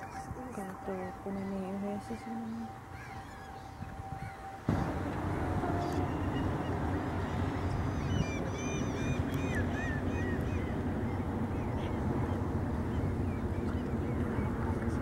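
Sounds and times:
cygnets peeping: 0.0 - 5.0, 5.8 - 14.8
low rushing noise: 3.8 - 15.0.

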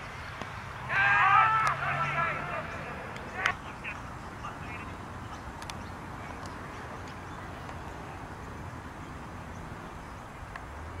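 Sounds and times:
faint clicks: 5.6 - 5.8.

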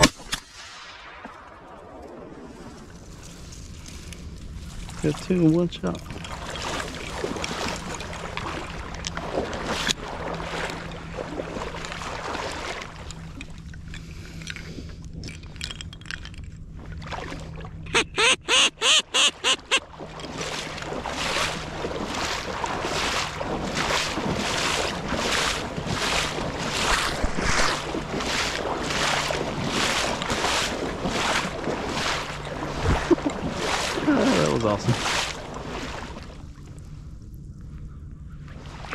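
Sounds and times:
duck quacking: 17.9 - 19.8
wind noise on microphone: 25.7 - 28.8.

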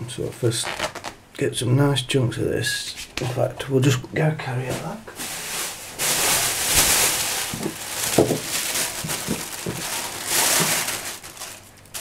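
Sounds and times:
plastic bag rustling and crinkling: 4.7 - 12.0.

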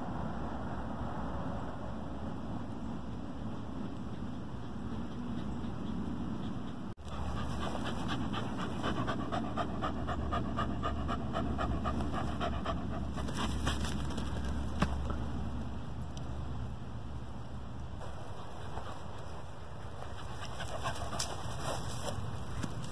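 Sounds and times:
dog panting: 4.1 - 14.0, 18.3 - 22.3.

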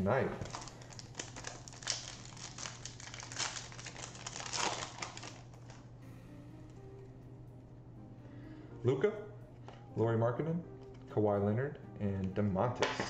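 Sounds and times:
foil wrapper tearing and crinkling: 0.4 - 5.8.

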